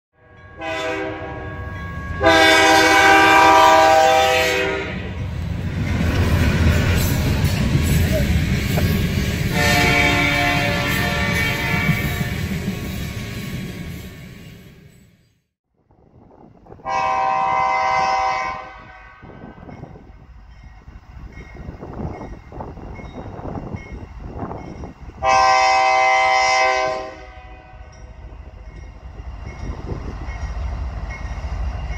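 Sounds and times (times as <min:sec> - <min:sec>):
locomotive air horn: 0:00.2 - 0:05.1, 0:09.5 - 0:12.5, 0:16.8 - 0:19.6, 0:25.2 - 0:27.9
locomotive rumbling past: 0:00.3 - 0:15.2, 0:15.9 - 0:31.9.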